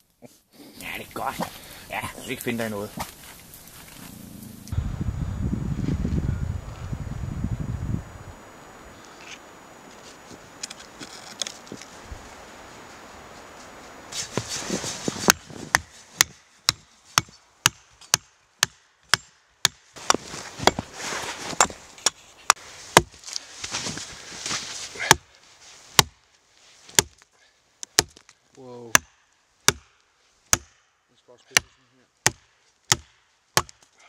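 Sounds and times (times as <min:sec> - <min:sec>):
axe chopping into log: 0:15.2 - 0:20.9, 0:23.0 - 0:23.2, 0:25.0 - 0:25.3, 0:26.0 - 0:26.2, 0:26.9 - 0:27.2, 0:27.8 - 0:28.3, 0:28.9 - 0:30.8, 0:31.5 - 0:33.9.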